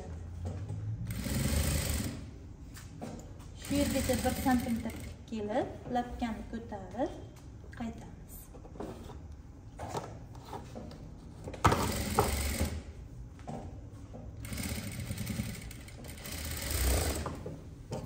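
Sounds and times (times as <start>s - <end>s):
industrial sewing machine stitching: 1.0s - 2.3s, 3.6s - 5.3s, 11.8s - 12.9s, 14.4s - 17.4s.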